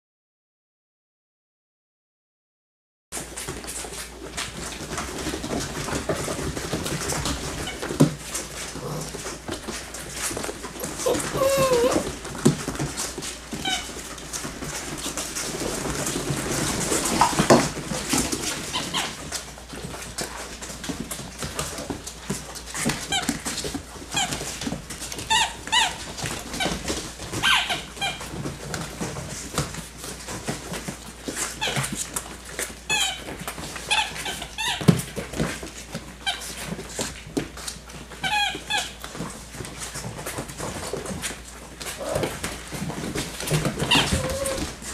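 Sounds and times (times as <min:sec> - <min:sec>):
paws clicking on hard floor: 0:03.2 - 0:44.9
puppies yipping and whining: 0:07.4 - 0:17.6, 0:18.4 - 0:19.4, 0:22.7 - 0:29.6, 0:31.3 - 0:35.5, 0:37.9 - 0:39.7, 0:41.8 - 0:44.9.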